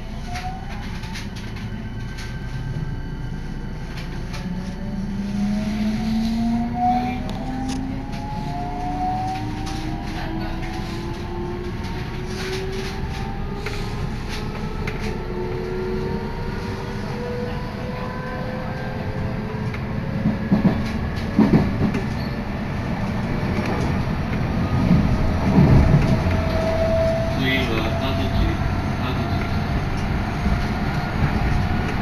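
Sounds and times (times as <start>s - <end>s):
train wheels rumbling on rail: 0.0s - 32.0s
train thumps: 20.2s - 22.2s.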